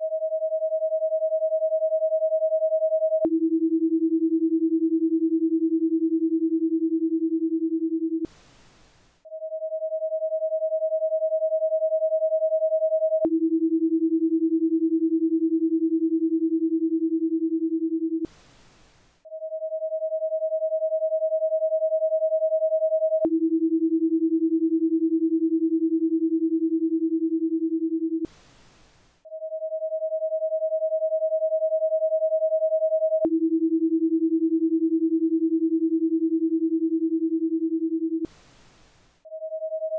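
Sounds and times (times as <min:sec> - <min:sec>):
high electronic sine tone: 0:00.0 - 0:03.4, 0:08.1 - 0:13.4, 0:18.1 - 0:23.5, 0:28.1 - 0:34.0, 0:38.2 - 0:39.9
low electronic sine tone: 0:00.0 - 0:39.9
faint hiss: 0:08.3 - 0:09.2, 0:18.3 - 0:19.2, 0:28.3 - 0:29.2, 0:38.3 - 0:39.2.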